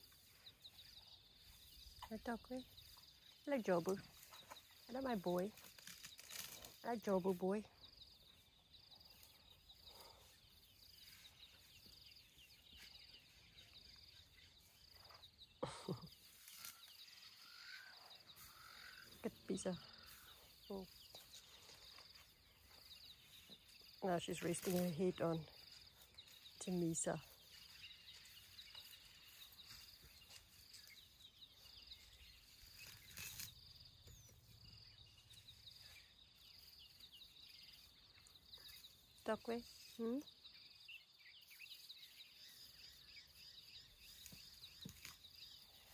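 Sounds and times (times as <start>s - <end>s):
insects trilling: 0.0s - 45.9s
brief rustle: 5.6s - 6.8s, 44.1s - 45.4s.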